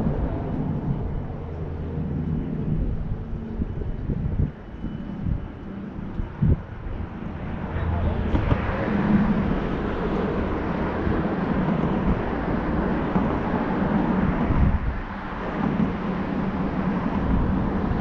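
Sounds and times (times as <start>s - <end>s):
engine rumble: 0.0s - 18.0s
low hum: 0.0s - 18.0s
wind noise on microphone: 0.0s - 18.0s.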